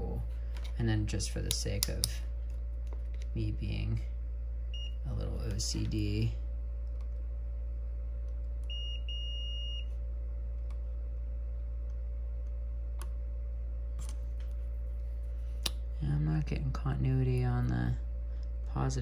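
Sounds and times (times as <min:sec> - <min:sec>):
steady low hum: 0:00.0 - 0:19.0
multimeter continuity beep: 0:04.7 - 0:05.2, 0:08.6 - 0:10.0.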